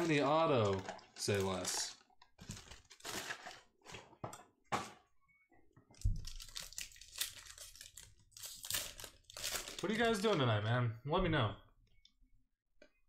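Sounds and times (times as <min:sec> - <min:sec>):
foil wrapper crinkling and tearing: 0:00.1 - 0:03.7, 0:06.1 - 0:10.4.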